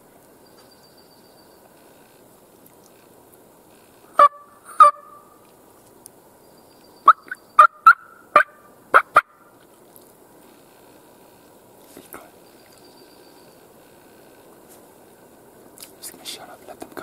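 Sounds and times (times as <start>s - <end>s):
turkey mouth call notes: 4.2s - 5.3s, 7.1s - 9.4s.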